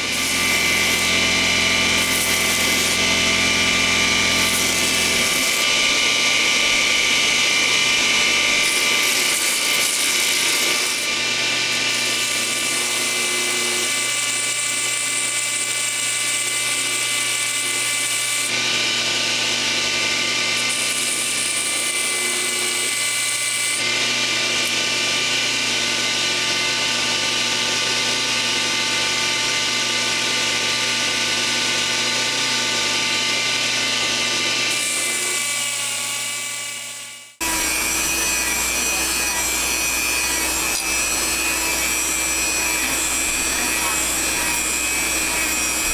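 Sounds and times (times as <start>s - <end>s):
belt grinder motor whine: 0.0s - 45.9s
knife blade grinding on belt: 37.6s - 45.9s.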